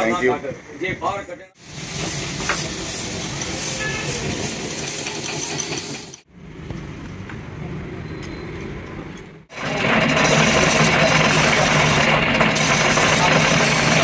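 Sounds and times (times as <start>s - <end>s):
machine tool motor hum: 9.5s - 14.0s.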